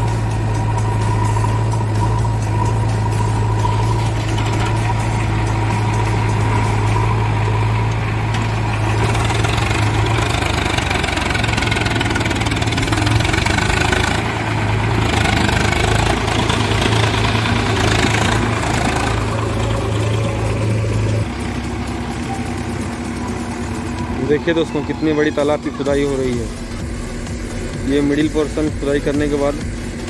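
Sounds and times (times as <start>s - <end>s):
diesel engines running: 0.0s - 30.0s
tractor driving past: 0.0s - 30.0s.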